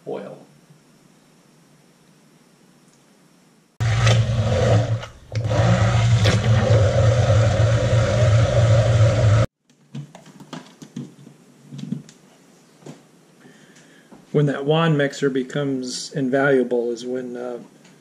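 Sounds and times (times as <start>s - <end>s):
immersion blender motor hum: 3.8s - 9.5s.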